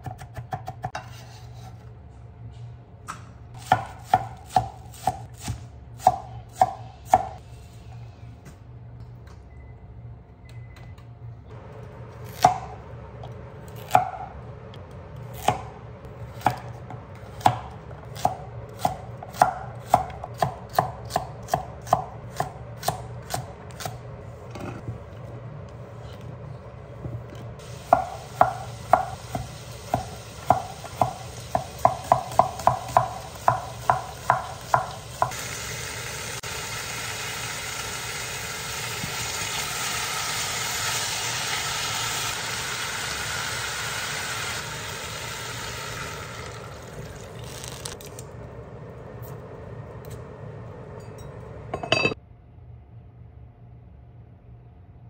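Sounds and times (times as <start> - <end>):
vegetables sizzling in pot: 27.6 - 48.2.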